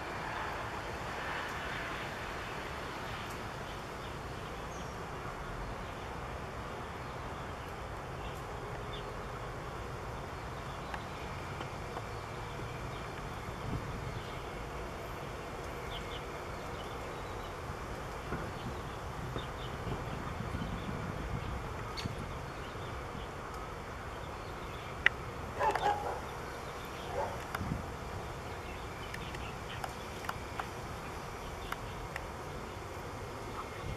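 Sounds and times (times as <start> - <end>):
insects buzzing: 0.0 - 33.9
low outdoor rumble: 0.0 - 33.9.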